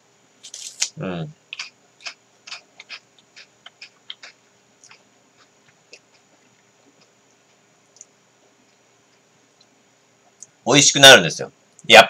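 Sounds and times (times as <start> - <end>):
crunching waffle cone: 0.4 - 7.1.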